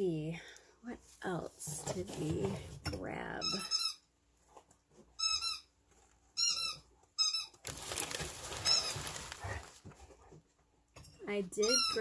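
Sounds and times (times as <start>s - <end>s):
dog squeaks: 5.2s - 5.7s, 6.4s - 7.6s
rustling scuffling: 7.6s - 10.6s.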